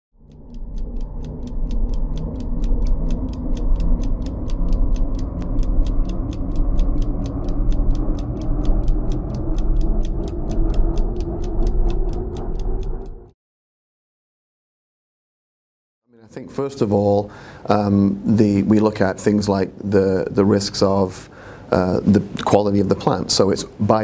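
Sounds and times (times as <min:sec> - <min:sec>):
crisp ticking beat: 0:00.2 - 0:13.3
held chords: 0:00.2 - 0:13.3
deep bass: 0:00.2 - 0:13.4.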